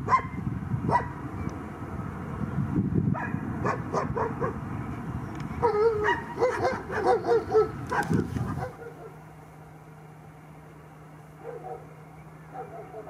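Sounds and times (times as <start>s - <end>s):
dog barking and yelping: 0.0s - 1.2s, 3.2s - 4.6s, 5.6s - 9.2s, 11.4s - 11.9s, 12.5s - 13.0s.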